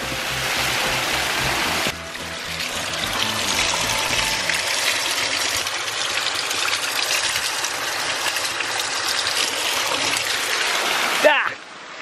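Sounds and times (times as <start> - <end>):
waterfall rushing: 0.0 - 6.8, 9.4 - 12.0.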